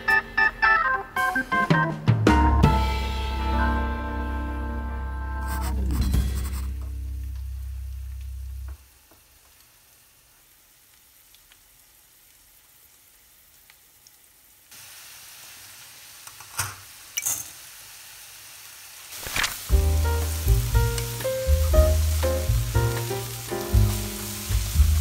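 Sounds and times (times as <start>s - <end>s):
garlic sizzling in oil: 6.7s - 25.0s.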